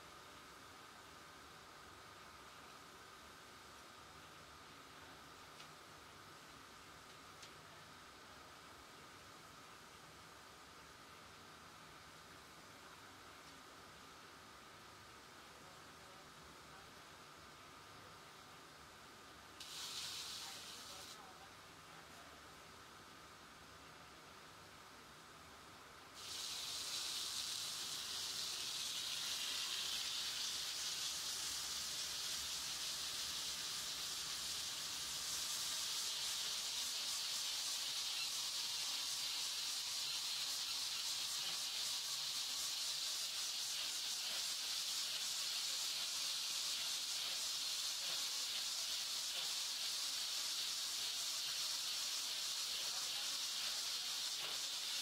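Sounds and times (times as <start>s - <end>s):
machine high hiss: 19.6s - 21.4s, 26.2s - 55.0s.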